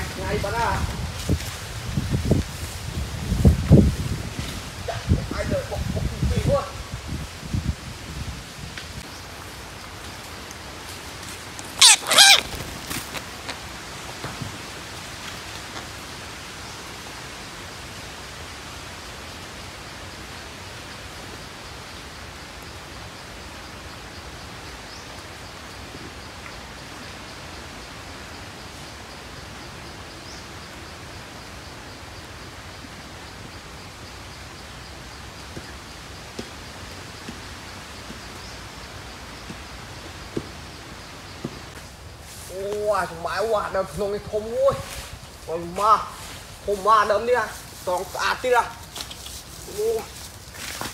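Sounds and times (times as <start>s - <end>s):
steady hiss: 0.0s - 50.9s
parakeets squawking: 11.7s - 12.8s.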